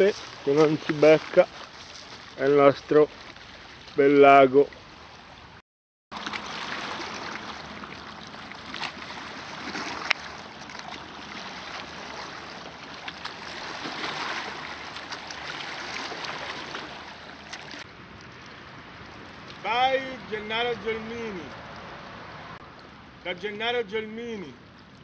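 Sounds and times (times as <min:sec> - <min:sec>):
small waves lapping on rocks: 0:00.0 - 0:04.7, 0:06.1 - 0:20.1.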